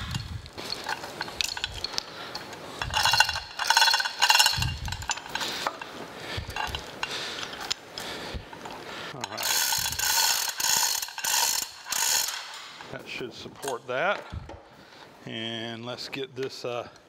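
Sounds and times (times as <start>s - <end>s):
steel chain clinking and rattling: 0.0s - 12.6s.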